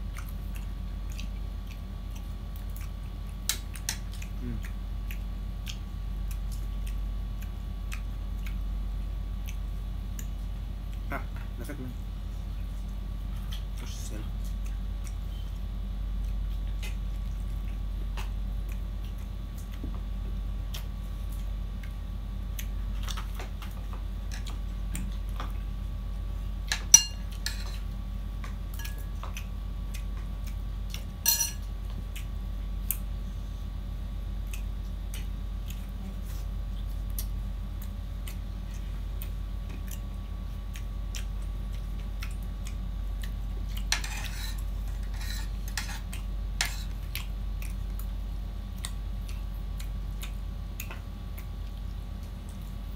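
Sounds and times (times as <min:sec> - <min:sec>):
steady low hum: 0:00.0 - 0:52.9
metal spoon clinking on ceramic: 0:26.9 - 0:27.8, 0:31.2 - 0:31.6.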